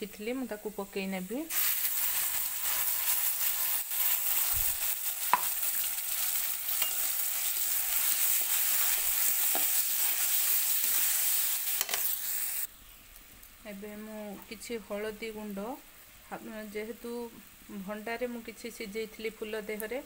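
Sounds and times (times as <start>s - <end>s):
paste sizzling in hot oil: 0.6s - 12.7s.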